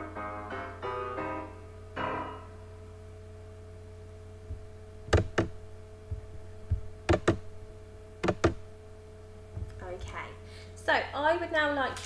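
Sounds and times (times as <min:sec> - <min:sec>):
piano music: 0:00.0 - 0:02.6
steady low hum: 0:00.0 - 0:12.0
soft low thumps: 0:04.4 - 0:10.0
sharp clicks: 0:07.1 - 0:07.4, 0:08.2 - 0:08.6.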